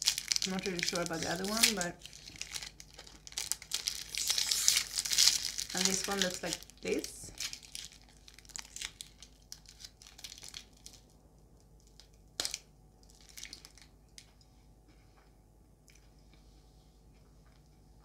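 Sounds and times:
foil wrapper crinkling: 0:00.0 - 0:13.9
soft crunching: 0:00.0 - 0:18.0
chocolate bar snapping: 0:11.7 - 0:13.9.

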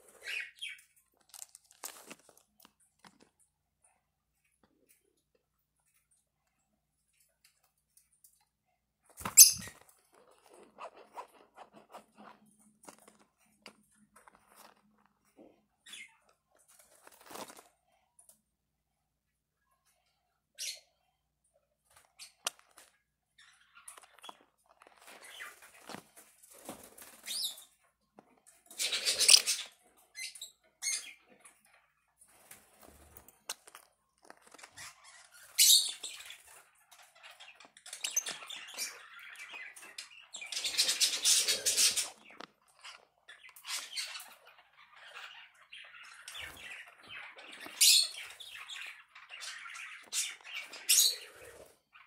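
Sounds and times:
parrots squawking: 0:28.8 - 0:30.3, 0:38.2 - 0:42.4.

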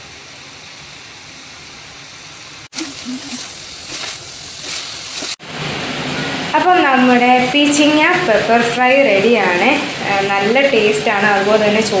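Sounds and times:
food sizzling in a pot: 0:00.3 - 0:12.0
wooden spatula scraping: 0:02.8 - 0:05.4.

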